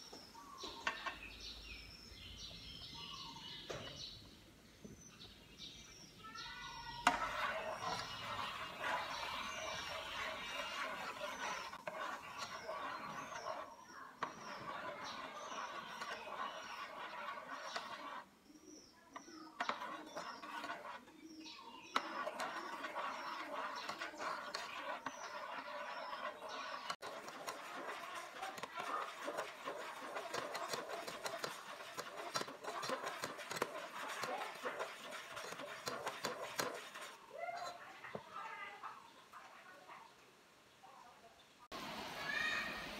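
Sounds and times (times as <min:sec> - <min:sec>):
small birds chirping: 0:00.0 - 0:42.7
liquid boiling: 0:07.0 - 0:18.4, 0:19.5 - 0:21.1, 0:21.9 - 0:38.3.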